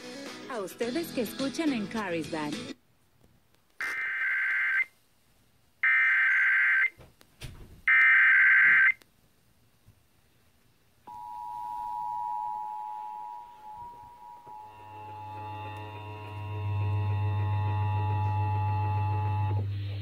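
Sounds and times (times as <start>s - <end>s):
two-tone attention signal: 11.1s - 19.6s.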